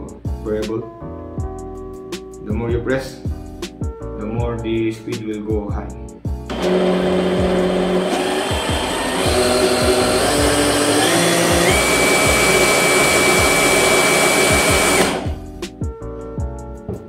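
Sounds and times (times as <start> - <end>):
high motor whine: 6.5 - 15.4
rotary hammer motor running: 6.5 - 15.4.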